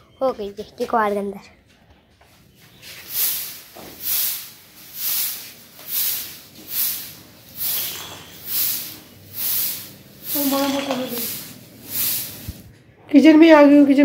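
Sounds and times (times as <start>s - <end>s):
broom sweeping cement floor: 2.5s - 12.8s.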